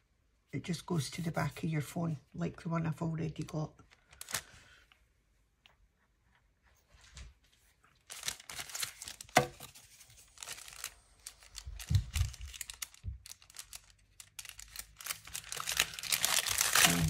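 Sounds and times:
plastic bag crinkling: 3.9 - 4.8, 7.8 - 17.0.

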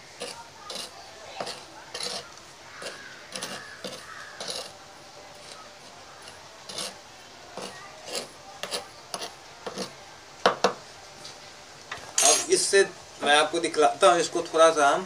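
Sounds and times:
metal spoon scraping powder: 0.1 - 10.0
spoon clinks: 12.2 - 12.6.

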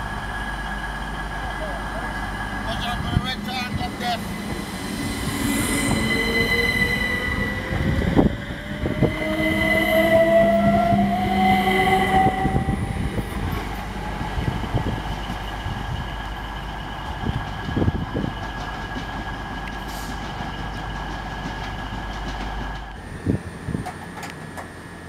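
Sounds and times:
electric train motor whine: 0.0 - 18.3
wheels clicking over rail joints: 14.7 - 23.0, 23.8 - 24.8.

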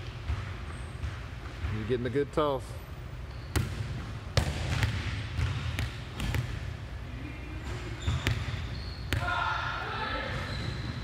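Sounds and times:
hand slapping volleyball: 3.6 - 6.6.

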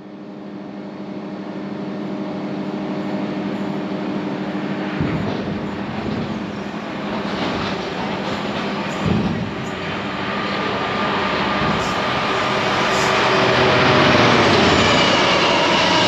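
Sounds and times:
train passing with steady hum: 0.0 - 16.0
train wheels knocking: 4.8 - 15.7.

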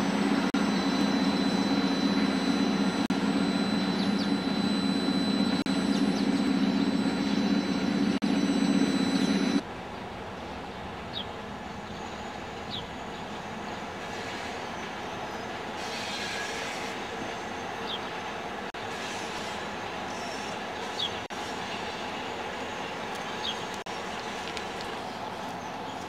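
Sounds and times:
diesel locomotive engine drone: 0.0 - 26.0
short high squeaks: 15.8 - 17.0.

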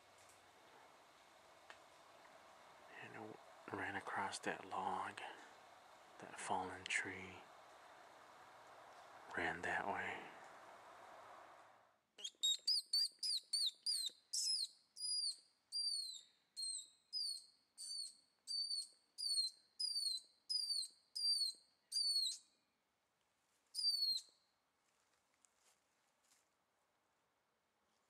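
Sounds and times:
high whistle-like calls: 12.2 - 22.4, 23.8 - 24.3.

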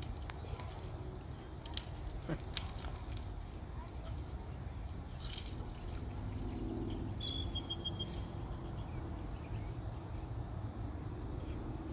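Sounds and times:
birds chirping: 5.7 - 10.2.

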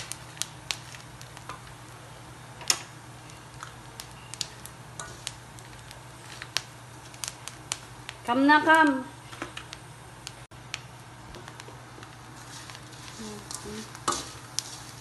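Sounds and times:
spoon and nuts tapping a pan: 13.4 - 14.8.

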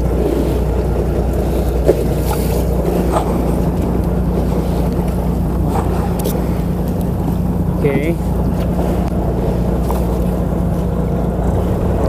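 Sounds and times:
boat engine humming: 0.0 - 12.0
sea noise: 0.0 - 12.0
wind: 0.0 - 12.0.

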